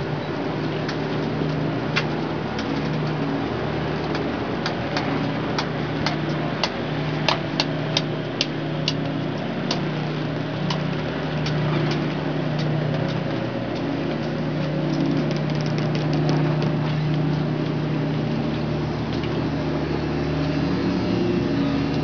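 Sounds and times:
low mechanical hum: 0.0 - 22.0
sharp clicks and ticks: 4.0 - 9.8, 11.4 - 17.3.

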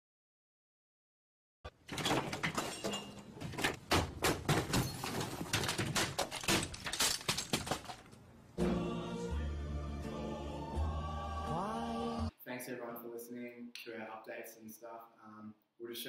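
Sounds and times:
office equipment crashing and smashing: 1.7 - 8.2.

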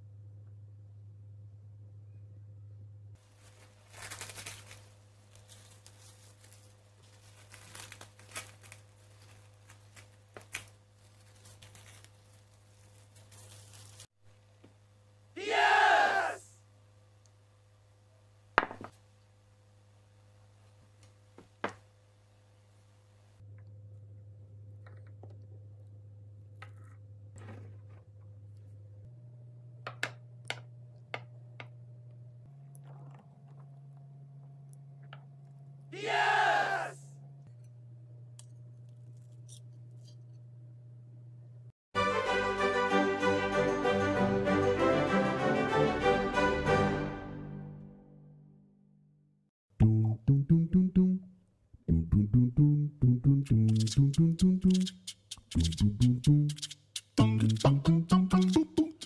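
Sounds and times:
cling wrap crinkling: 3.2 - 14.1
sharp clicks: 54.6 - 57.8.

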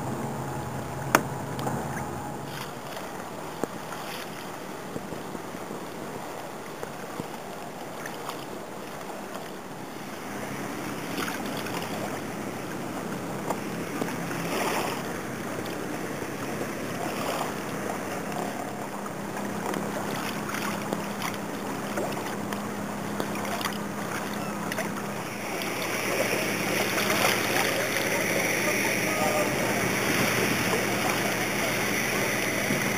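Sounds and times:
water lapping against kayak hull: 0.0 - 32.9
wind on microphone: 10.3 - 32.9.

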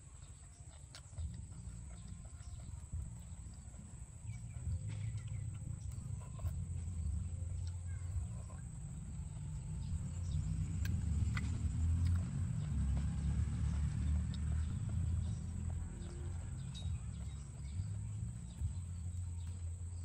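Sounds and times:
constant low rumble: 0.0 - 20.0.

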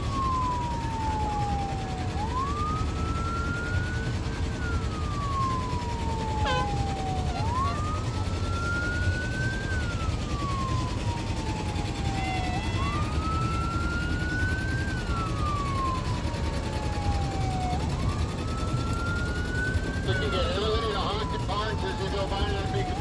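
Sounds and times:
motor-driven siren wailing: 0.0 - 23.0.

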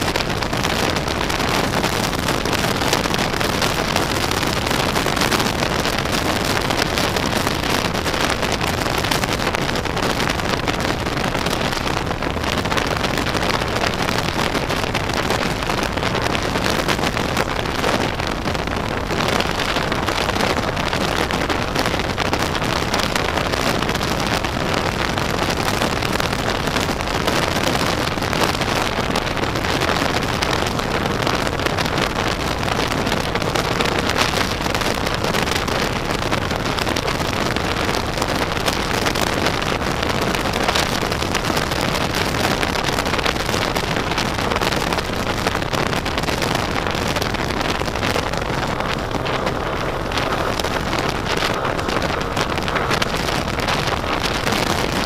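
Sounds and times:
scooter engine drone: 0.0 - 55.0
wind buffeting microphone: 0.0 - 55.0
tyre noise: 44.9 - 55.0.

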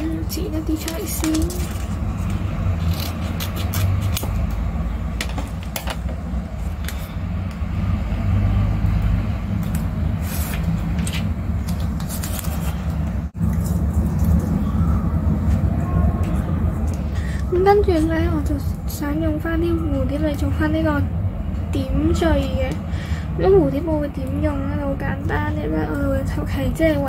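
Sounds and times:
tape and paper rustling: 0.4 - 4.6, 9.6 - 14.9
low rumble: 12.7 - 27.0.

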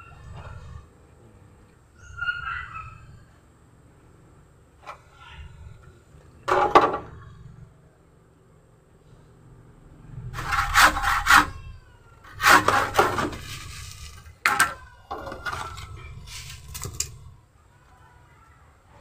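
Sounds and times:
hand saw cutting stem: 10.4 - 11.6, 12.3 - 14.2.

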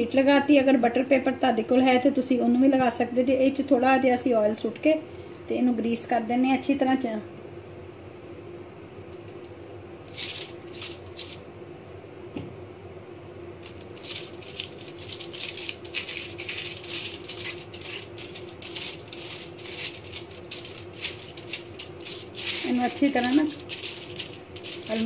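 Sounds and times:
brush scratching on foil: 10.1 - 11.4, 13.6 - 25.0.

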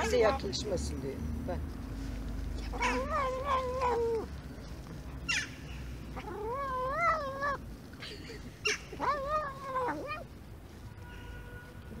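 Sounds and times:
cat meowing: 2.7 - 4.3, 6.2 - 7.6, 9.0 - 10.3.

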